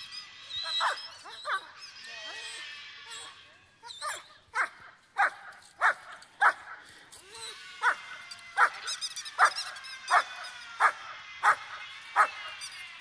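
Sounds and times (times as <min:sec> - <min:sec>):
squeaky dog toy squeaking: 0:00.0 - 0:04.7, 0:07.3 - 0:13.0.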